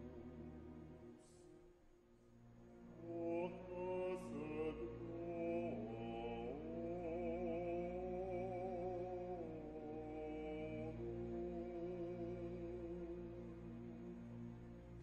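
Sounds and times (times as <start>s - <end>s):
soft low sustained accompaniment: 0.0s - 15.0s
man singing classical solo: 3.0s - 13.2s.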